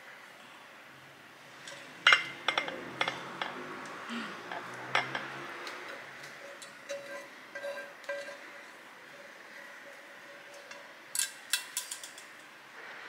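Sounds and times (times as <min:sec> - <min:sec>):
metal pan clinking and scraping: 0:01.6 - 0:03.6, 0:04.5 - 0:12.5.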